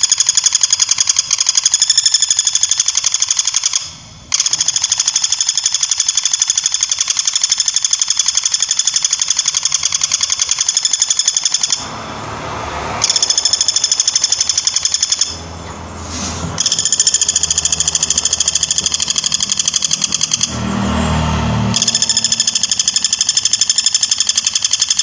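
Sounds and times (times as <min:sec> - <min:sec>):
woodpecker rattling call: 0:00.0 - 0:11.8, 0:16.6 - 0:20.5, 0:21.8 - 0:25.0.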